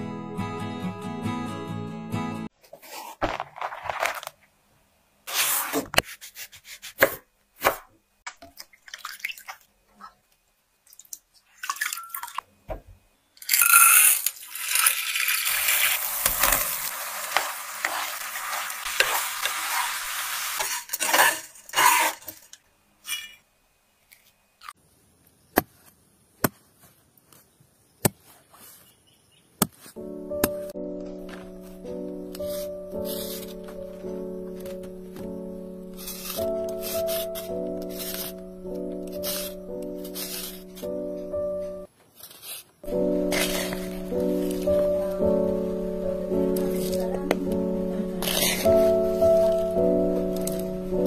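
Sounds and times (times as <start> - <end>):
music: 0.0 - 2.5, 30.0 - 41.9, 42.8 - 51.0.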